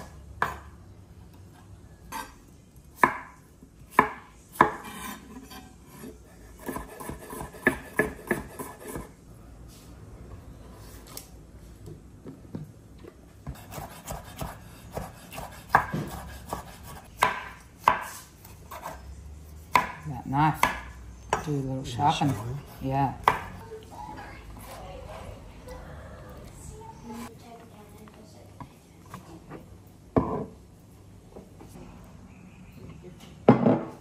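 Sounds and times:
knife chopping on cutting board: 0:06.6 - 0:09.1, 0:13.4 - 0:19.0, 0:19.7 - 0:20.0.

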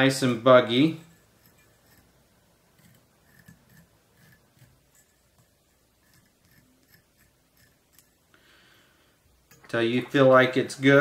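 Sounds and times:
brush scratching on yarn: 0:01.0 - 0:08.1.

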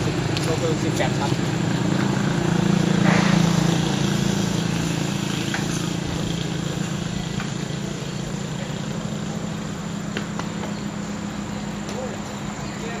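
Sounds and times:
engine humming: 0:00.0 - 0:13.0.

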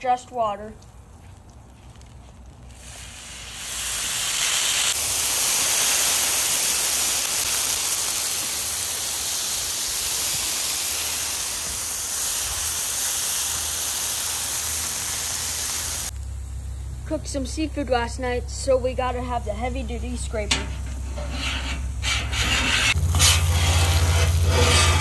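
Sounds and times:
water sizzling on hot griddle: 0:00.0 - 0:17.9, 0:19.9 - 0:25.0.

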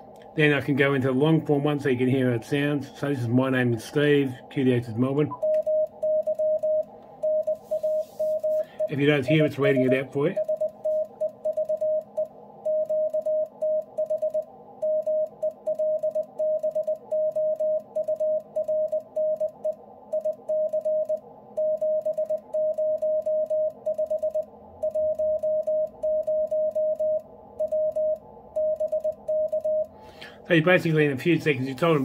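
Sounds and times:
morse code tone: 0:05.3 - 0:29.9.

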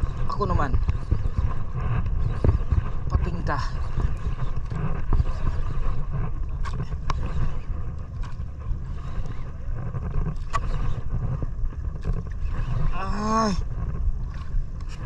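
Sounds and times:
boat engine rumble: 0:00.0 - 0:15.0.

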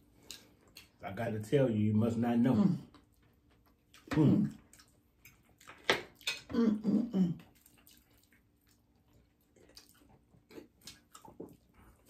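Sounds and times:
wet chewing: 0:00.0 - 0:01.0, 0:02.8 - 0:06.6, 0:07.3 - 0:12.0.

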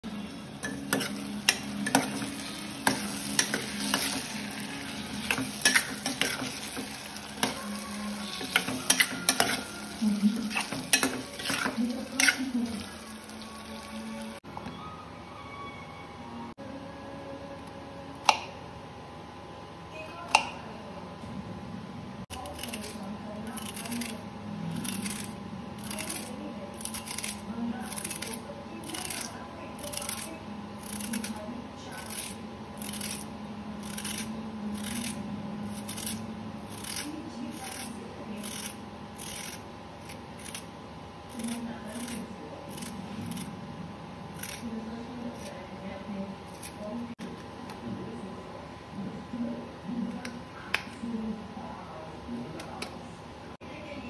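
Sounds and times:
food sizzling in oil: 0:00.1 - 0:14.4
spatula scraping a pan: 0:00.6 - 0:13.1
blade scraping gourd skin: 0:22.4 - 0:40.7, 0:41.3 - 0:43.5, 0:44.3 - 0:45.6.

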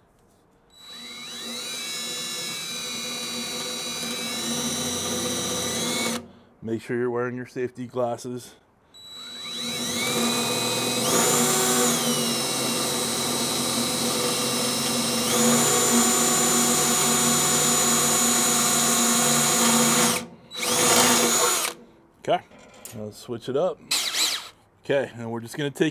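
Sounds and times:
cordless drill boring into steel: 0:00.7 - 0:06.2, 0:09.0 - 0:21.8, 0:23.9 - 0:24.6.

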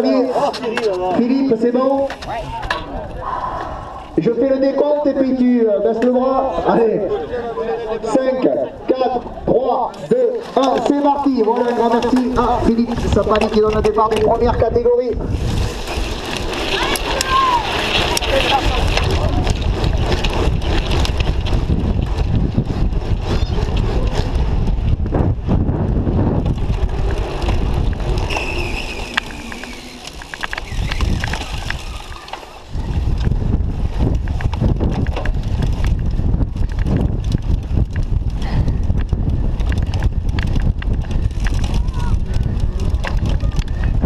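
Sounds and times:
wind buffeting microphone: 0:00.9 - 0:44.0
bike frame rattling over bumps: 0:09.1 - 0:44.0.

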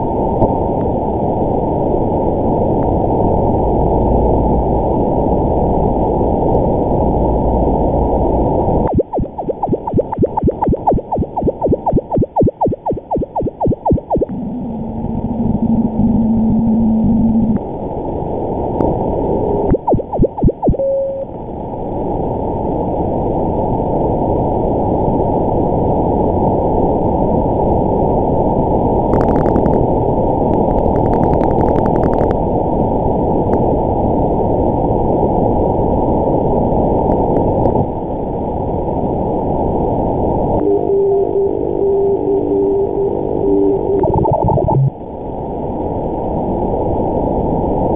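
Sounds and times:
radio tones sweeping past: 0:08.8 - 0:17.6, 0:19.6 - 0:21.2, 0:40.6 - 0:45.0
steady data signal tone: 0:08.8 - 0:17.6, 0:19.6 - 0:21.3, 0:29.1 - 0:29.8, 0:30.5 - 0:32.4, 0:40.6 - 0:45.0
keyed on-off tones: 0:08.9 - 0:17.6, 0:19.7 - 0:21.3, 0:40.6 - 0:44.9.

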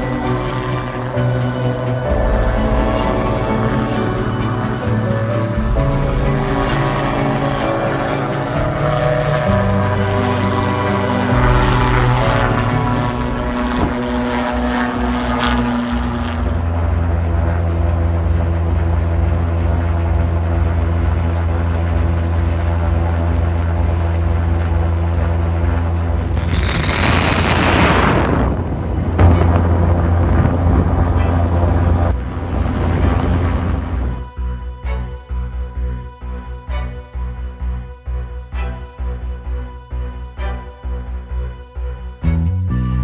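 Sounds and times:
loud rushing noise: 0:00.0 - 0:17.0, 0:26.1 - 0:34.2
propeller engines droning: 0:00.0 - 0:43.0.

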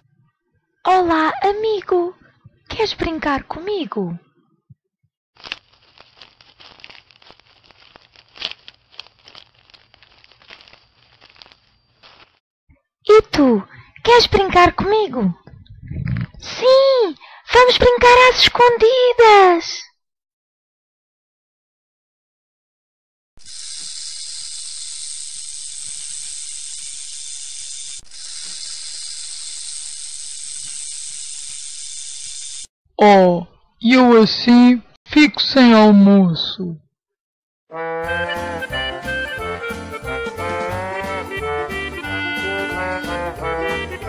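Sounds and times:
crinkling and crackling: 0:05.4 - 0:12.4.

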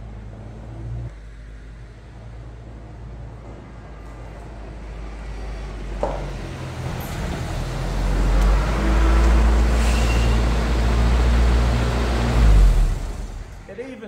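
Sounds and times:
short sharp squeak: 0:09.8 - 0:10.5
brief high squeal: 0:09.8 - 0:10.6.

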